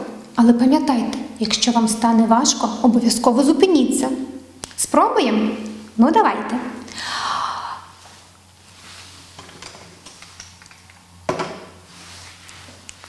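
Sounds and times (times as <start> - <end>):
woman breathing in deeply: 6.9 - 8.1.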